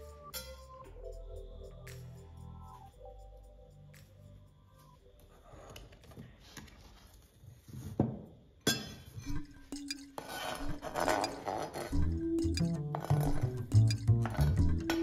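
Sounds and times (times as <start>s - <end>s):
knife scraping cutting board: 10.2s - 11.9s.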